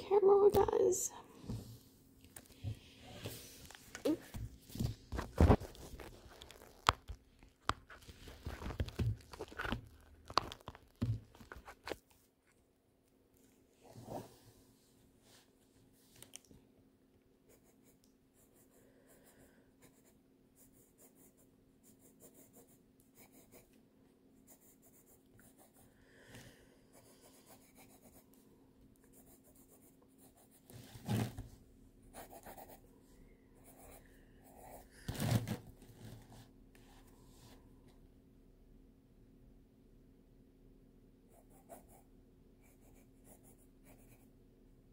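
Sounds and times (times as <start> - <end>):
pencil scratching on paper: 17.5 - 23.8, 24.4 - 25.9, 26.9 - 28.3, 29.0 - 31.2, 32.1 - 32.8.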